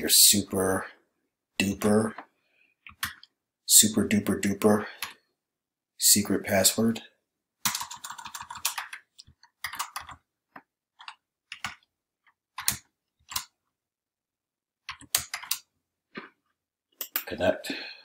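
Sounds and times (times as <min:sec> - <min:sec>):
keyboard typing clicks: 0:07.6 - 0:13.6, 0:14.8 - 0:15.7.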